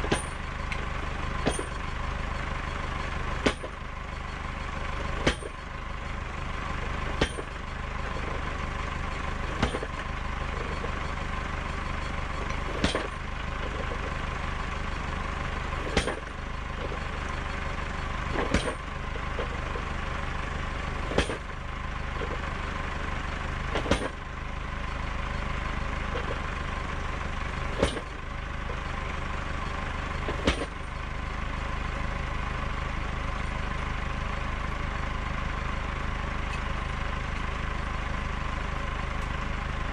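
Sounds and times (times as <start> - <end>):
tractor engine running: 0.0 - 39.9
post banger striking wooden post: 1.4 - 1.8, 7.2 - 7.5, 9.6 - 9.9, 16.0 - 16.2, 18.4 - 18.8, 21.2 - 21.5, 23.8 - 24.2, 27.8 - 28.1.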